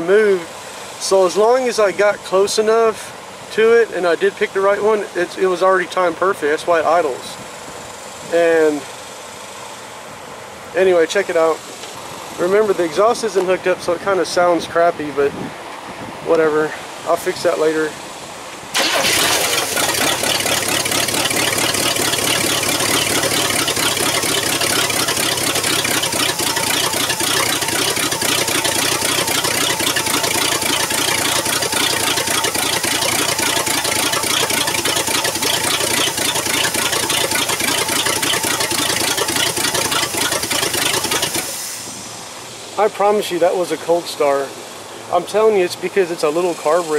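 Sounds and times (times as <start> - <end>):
car engine starting and idling: 18.5 - 43.3.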